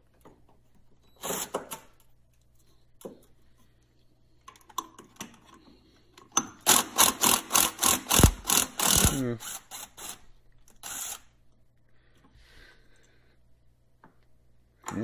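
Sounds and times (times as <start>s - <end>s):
impact tool metallic clicks: 7.9s - 9.2s.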